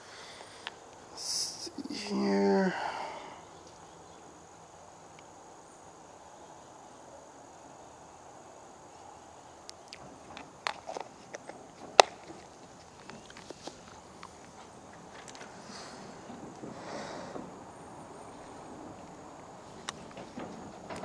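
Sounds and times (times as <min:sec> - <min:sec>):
insects chirring: 0:00.0 - 0:21.0
sharp clicks and knocks: 0:19.8 - 0:21.0.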